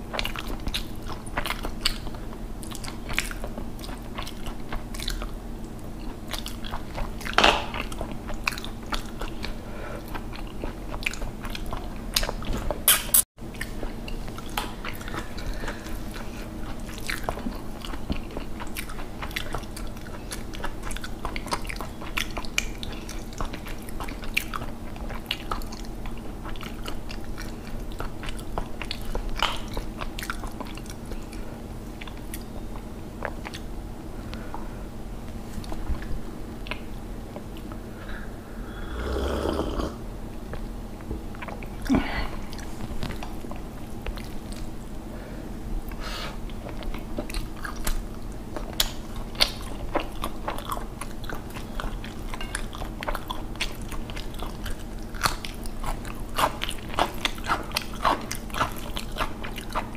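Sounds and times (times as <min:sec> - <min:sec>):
person chewing and smacking: 0:00.0 - 0:34.4, 0:35.3 - 0:37.9, 0:41.3 - 0:45.0, 0:45.8 - 0:59.9
wet mouth clicks: 0:12.9 - 0:13.8.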